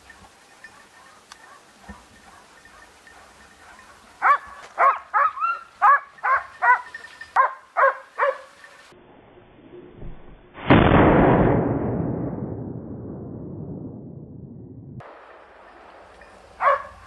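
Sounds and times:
dog barking: 0.7s - 8.5s, 16.6s - 17.0s.

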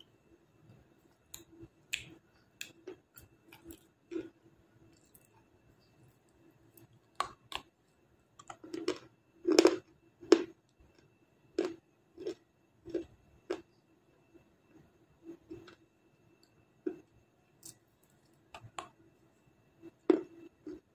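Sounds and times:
chewing hard clay crunches: 1.3s - 5.3s, 8.4s - 13.7s.

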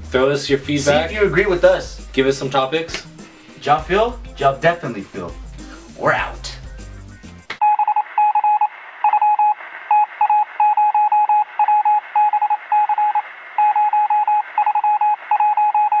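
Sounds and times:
rapid electronic beeping: 7.6s - 16.0s.

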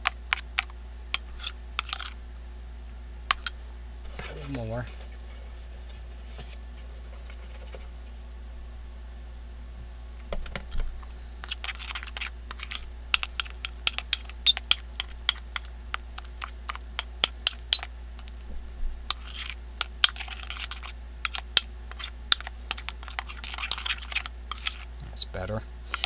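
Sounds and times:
spoon scraping paste: 0.0s - 2.2s, 11.4s - 18.3s, 19.1s - 25.0s.

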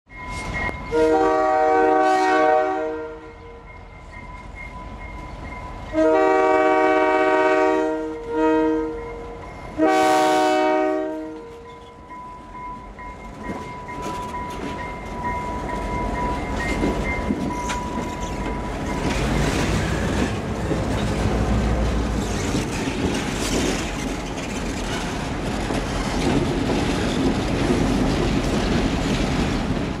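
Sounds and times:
locomotive air horn blasts: 0.9s - 3.6s, 5.9s - 11.8s
train wheels clattering on rails: 11.3s - 30.0s.

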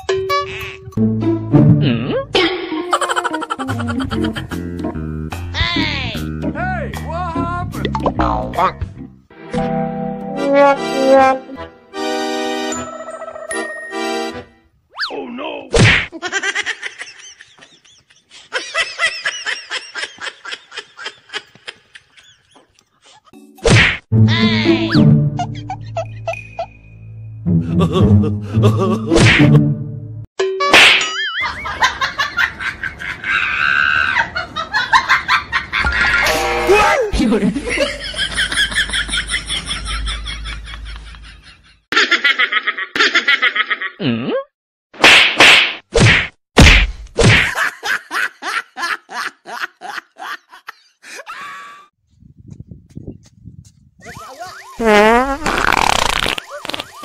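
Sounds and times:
fast chuckling: 2.9s - 4.6s, 56.0s - 57.0s
rapid pulsing laughter: 2.9s - 4.6s
rapid rhythmic giggling: 2.9s - 4.7s.

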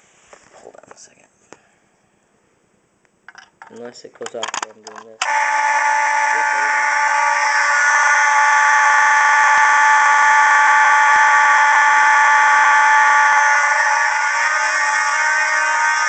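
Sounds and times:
fire alarm horns buzzing: 5.2s - 16.0s.

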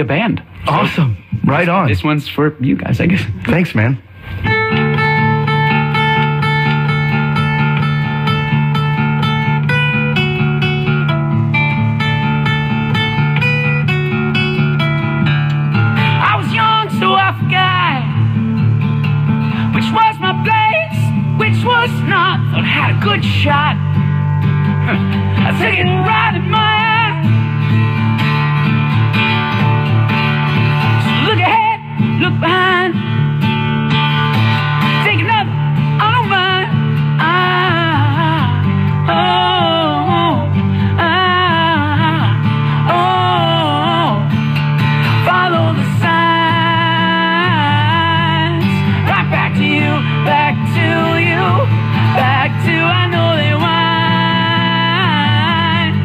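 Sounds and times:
acoustic guitar strummed and picked: 3.0s - 56.0s
man singing: 16.1s - 18.2s, 19.8s - 23.8s, 24.8s - 27.3s, 45.2s - 56.0s.

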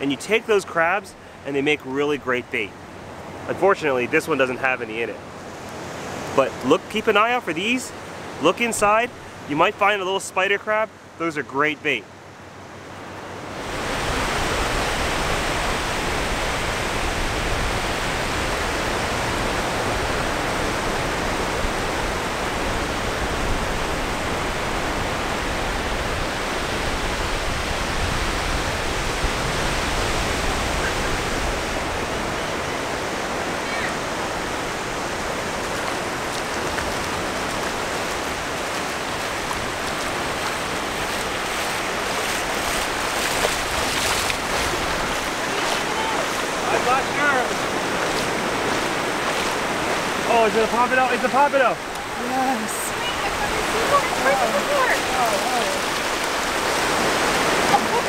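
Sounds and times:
surf washing on beach: 0.0s - 58.0s.

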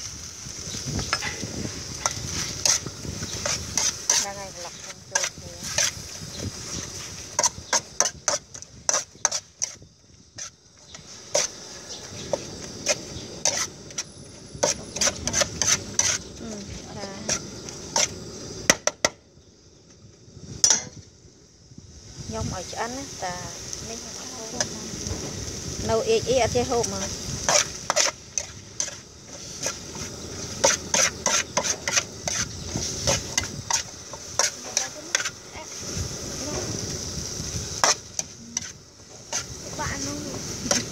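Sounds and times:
faint sizzle: 0.0s - 40.9s
spatula scraping metal wok: 0.5s - 18.6s, 24.4s - 40.9s.

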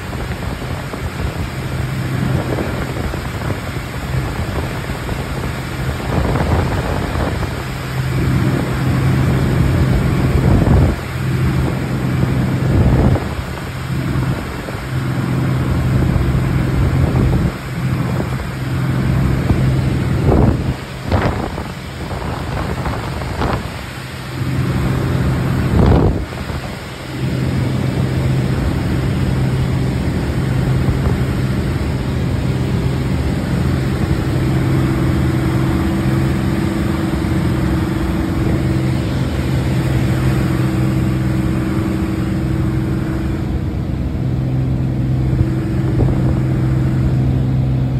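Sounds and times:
airplane engine and propeller drone: 0.0s - 47.9s
rush of noise: 0.0s - 47.9s.

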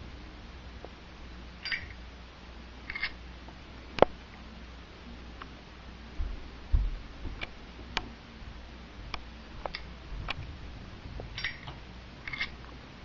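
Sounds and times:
ringing metallic clinks: 1.6s - 2.0s, 11.4s - 12.5s.

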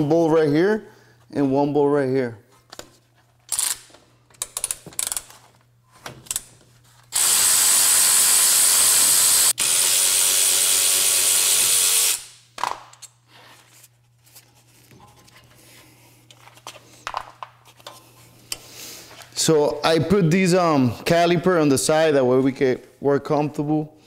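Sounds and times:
power ratchet motor running: 3.5s - 3.8s, 7.1s - 12.3s.

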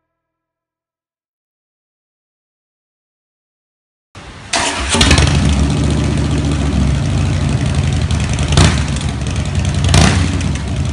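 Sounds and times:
motorcycle engine idling: 4.6s - 10.9s.

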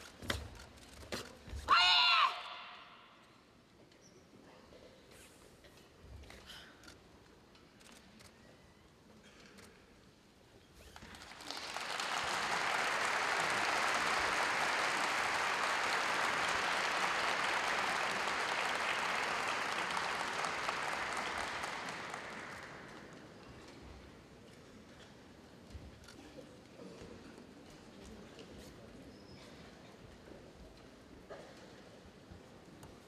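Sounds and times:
audience applauding: 11.0s - 23.2s.

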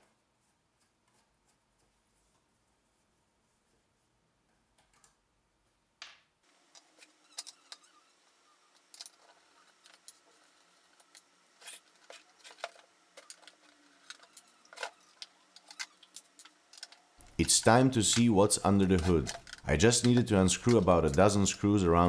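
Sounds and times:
screwdriver clicking in screw heads: 12.6s - 22.0s.

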